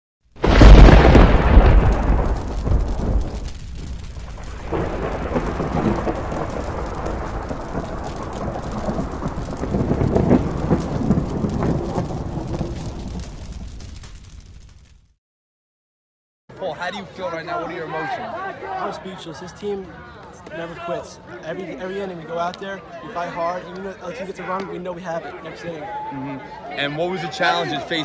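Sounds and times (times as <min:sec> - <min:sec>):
rain-like hiss: 0:00.4 - 0:14.2
thunder clap and rumble: 0:00.4 - 0:15.0.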